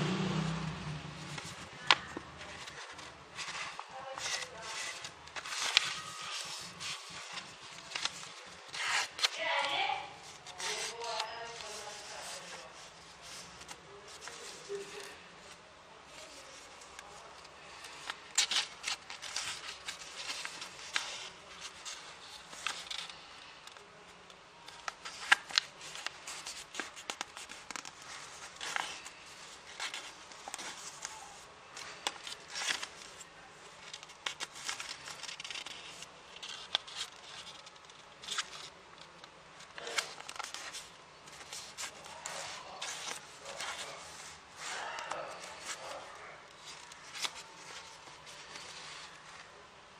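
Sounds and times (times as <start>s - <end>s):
paper rustling and crinkling: 1.2s - 49.7s
paper crease snaps: 1.3s - 12.4s, 24.7s - 33.2s, 33.8s - 49.4s.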